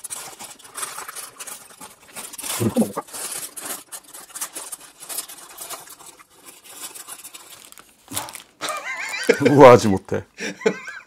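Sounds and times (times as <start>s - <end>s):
paper wrappers rustling: 0.0s - 10.2s
person sighing: 8.1s - 8.4s.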